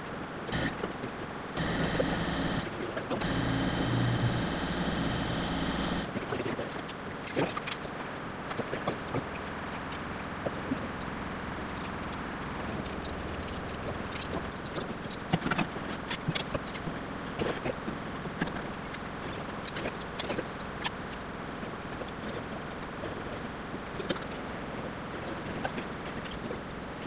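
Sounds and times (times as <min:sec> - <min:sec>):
steady background hum: 0:00.0 - 0:27.0.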